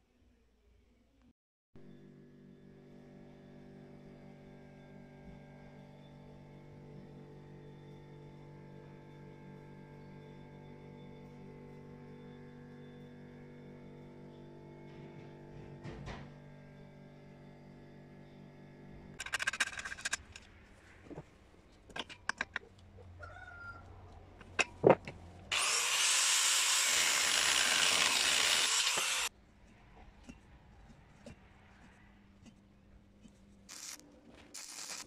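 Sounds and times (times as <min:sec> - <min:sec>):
angle grinder on steel: 0:19.2 - 0:20.5, 0:24.4 - 0:29.3, 0:33.7 - 0:35.0
metal clanks and knocks: 0:24.4 - 0:25.4
stick welder arc crackling: 0:25.5 - 0:29.3, 0:33.6 - 0:35.0.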